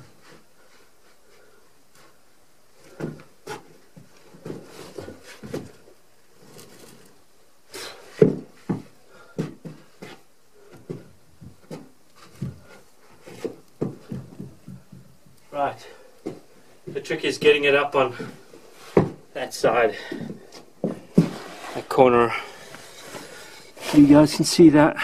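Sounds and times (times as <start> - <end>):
person clambering against logs: 2.8 - 7.1, 7.8 - 24.0
log pushed along log wall: 18.1 - 24.5.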